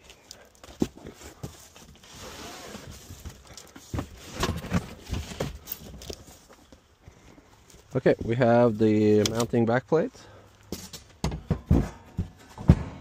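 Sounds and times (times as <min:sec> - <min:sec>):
cardboard flaps and packing rustling: 0:00.0 - 0:06.9
short knocks and bumps: 0:11.2 - 0:13.0.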